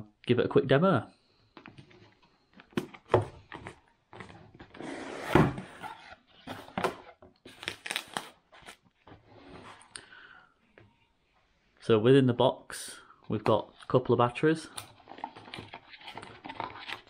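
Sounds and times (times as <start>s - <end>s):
cardboard scraping rustle: 3.6s - 7.7s.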